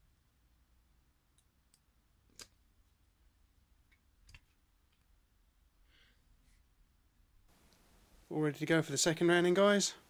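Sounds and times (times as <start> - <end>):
faint small clicks: 1.3 - 2.6, 3.9 - 5.1.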